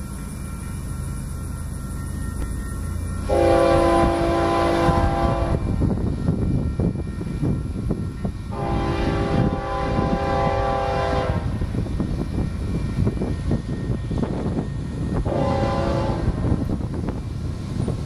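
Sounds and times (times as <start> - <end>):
train rumble: 0.0 - 18.0
locomotive air horn blast: 3.3 - 5.7, 8.5 - 11.5, 15.2 - 16.4.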